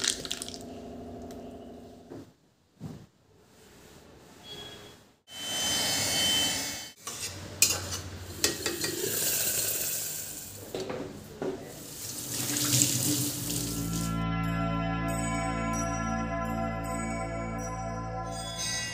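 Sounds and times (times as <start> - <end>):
metal pots clinking: 7.6 - 9.9
running water: 11.7 - 14.1.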